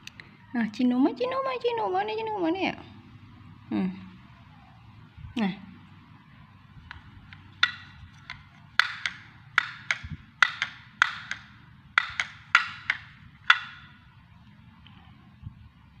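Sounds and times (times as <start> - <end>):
sharp ringing taps on hard object: 7.6 - 13.9.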